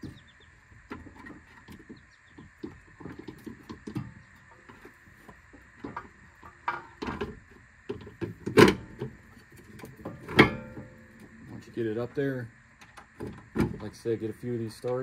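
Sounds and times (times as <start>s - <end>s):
metallic knocks and clunks: 10.0s - 11.1s.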